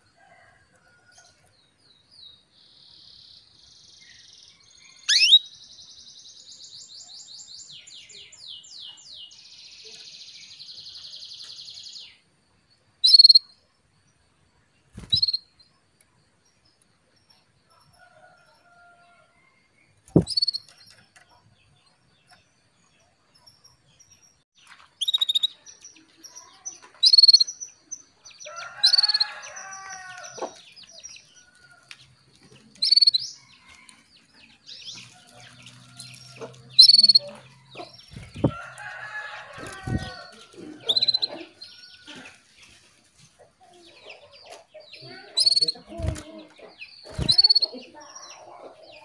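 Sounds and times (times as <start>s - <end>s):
canary call notes: 5.1s - 5.4s.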